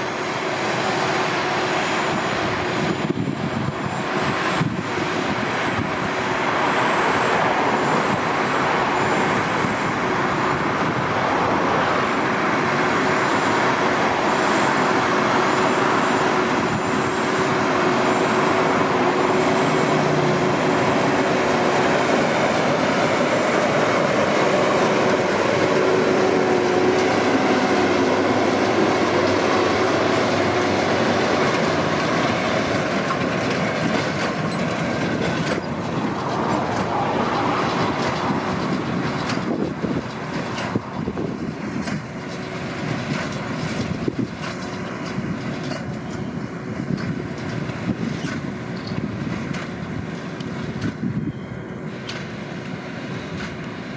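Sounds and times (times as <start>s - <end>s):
tractor diesel engine under load: 0.0s - 53.9s.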